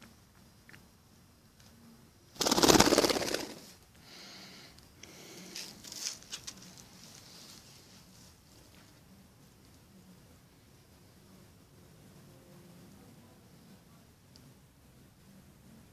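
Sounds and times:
bird wings flapping: 0:02.4 - 0:03.8
soft rustling: 0:05.4 - 0:09.8.

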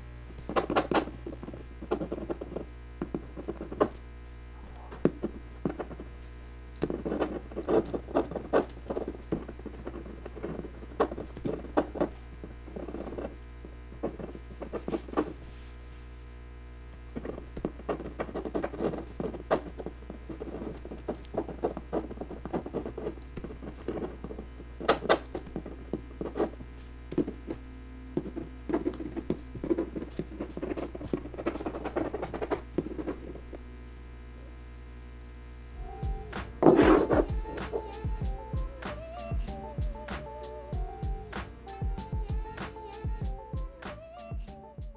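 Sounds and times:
steady low hum: 0:00.0 - 0:44.9
pen nib scratching on paper: 0:00.4 - 0:04.0, 0:04.9 - 0:06.1, 0:06.8 - 0:15.4, 0:17.1 - 0:33.5, 0:36.4 - 0:38.0.

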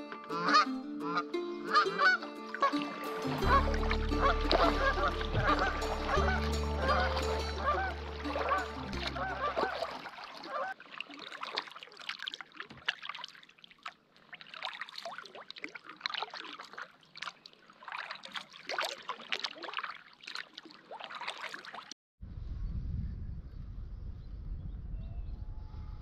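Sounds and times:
paddle splashing in water: 0:00.1 - 0:22.0
water dripping off paddle: 0:01.7 - 0:22.0.

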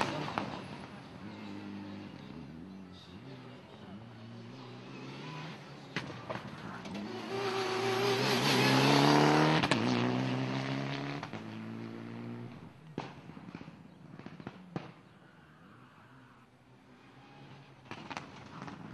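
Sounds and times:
rally car engine revving: 0:00.0 - 0:14.6.

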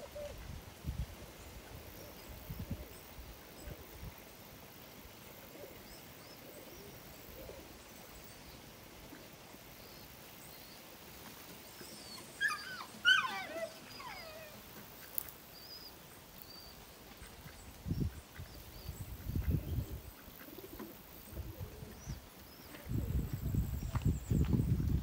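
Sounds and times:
dog yelping: 0:12.0 - 0:14.6.

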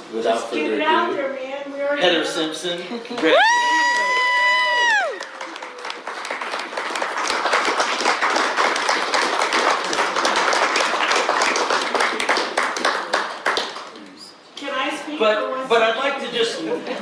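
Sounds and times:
audience applauding: 0:03.2 - 0:14.0.

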